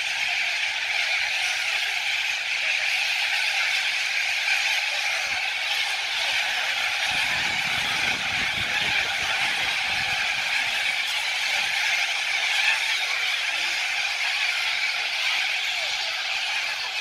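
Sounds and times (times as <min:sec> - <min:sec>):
cockatoos screeching: 0:00.0 - 0:17.0.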